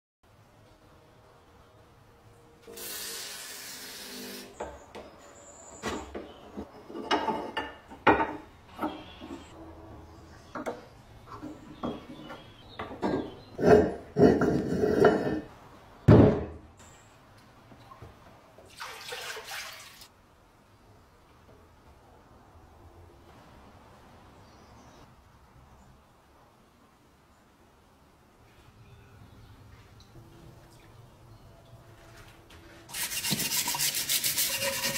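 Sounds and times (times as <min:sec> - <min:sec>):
water poured into plastic tub: 0:18.7 - 0:20.1.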